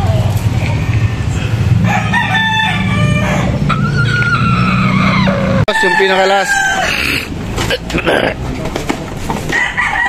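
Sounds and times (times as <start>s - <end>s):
roosters crowing: 1.1s - 8.1s, 9.4s - 10.0s.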